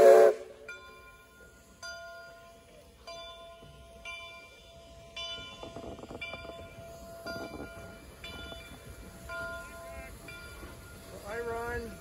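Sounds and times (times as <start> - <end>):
locomotive bell ringing: 0.0 - 12.0
rough train noise bursts: 0.0 - 12.0.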